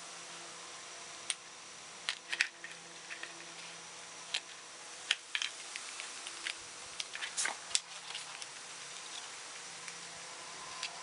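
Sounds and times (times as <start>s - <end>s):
faint steady hiss: 0.0s - 11.0s
plastic film crackling and clicking: 4.3s - 10.0s.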